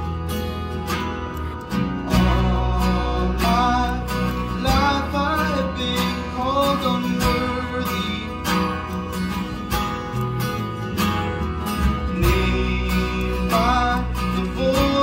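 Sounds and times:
acoustic guitars strumming: 0.0s - 15.0s
man singing: 2.0s - 9.1s, 11.9s - 15.0s.

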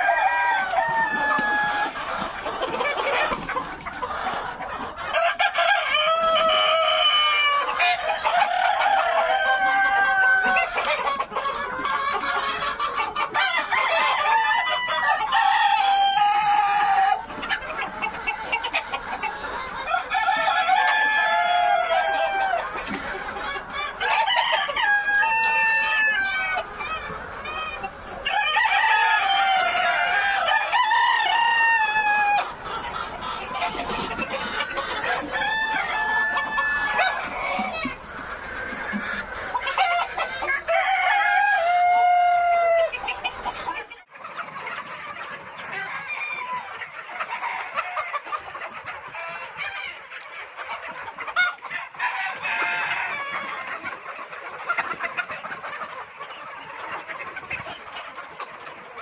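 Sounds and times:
roosters crowing: 0.0s - 11.3s, 12.0s - 19.0s, 19.8s - 43.9s, 45.8s - 48.3s, 51.3s - 53.9s
chickens clucking: 0.0s - 59.0s.

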